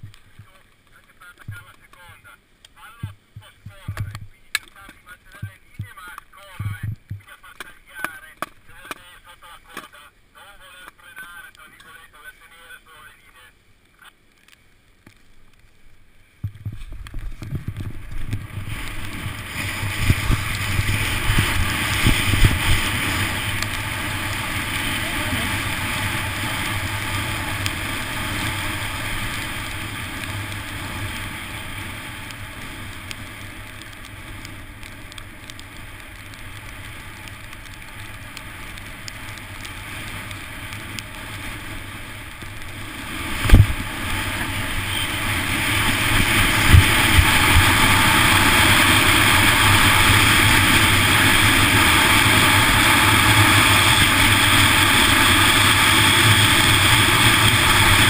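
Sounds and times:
skis running on hard snow: 0.0s - 10.0s, 16.4s - 58.0s
wind rushing over helmet: 16.4s - 34.8s, 36.2s - 58.0s.

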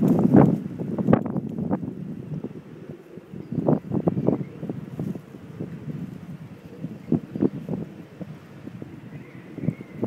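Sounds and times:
wind gusting over microphone: 0.0s - 10.0s.

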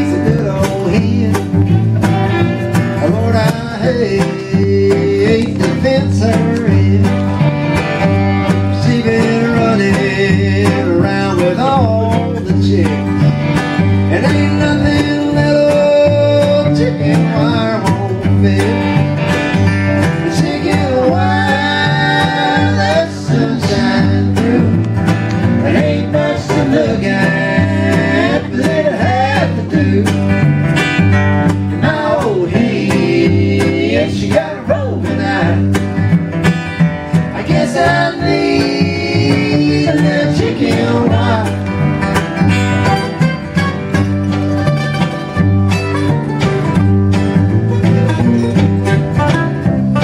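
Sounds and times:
people singing: 0.0s - 1.6s, 3.0s - 7.3s, 8.6s - 13.0s, 14.1s - 19.1s, 20.0s - 30.4s, 31.7s - 36.0s, 37.1s - 41.8s
acoustic string band playing: 0.0s - 50.0s.

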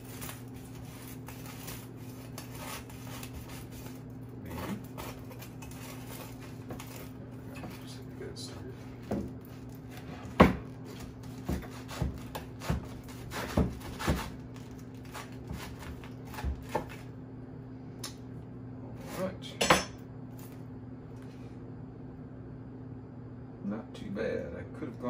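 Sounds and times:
knife sawing through bread crust: 0.0s - 7.9s, 8.6s - 17.0s.

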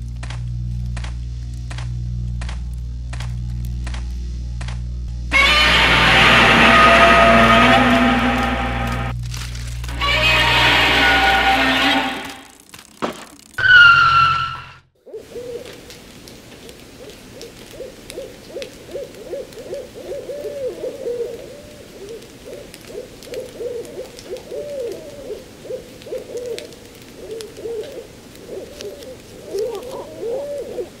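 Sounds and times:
owls hooting: 5.3s - 9.1s, 9.9s - 12.4s, 17.0s - 31.0s.

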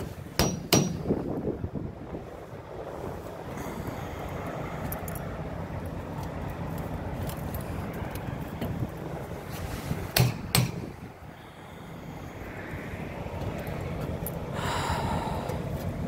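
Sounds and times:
wind noise: 0.0s - 16.0s
sharp knocks on steel tank: 0.4s - 1.1s, 10.2s - 10.9s.

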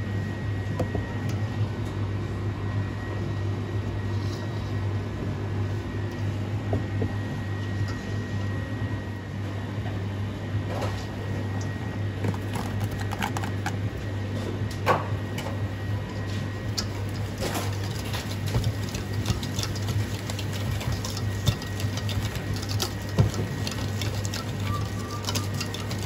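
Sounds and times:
steady low hum: 0.0s - 26.0s
wire whisk scraping metal bowl: 16.8s - 26.0s.

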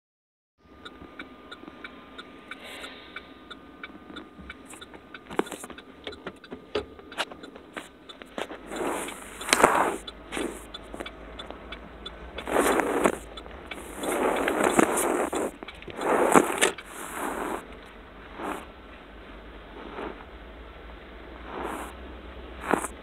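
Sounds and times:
faint steady tone: 0.6s - 23.0s
steady ticking: 0.6s - 23.0s
rushes of noise: 8.7s - 11.2s, 12.1s - 18.8s, 19.6s - 20.6s, 21.3s - 23.0s.

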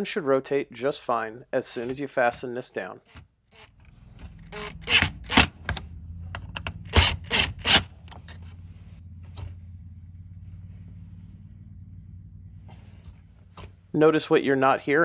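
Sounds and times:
cordless drill bursts: 4.5s - 5.4s, 6.9s - 7.9s.

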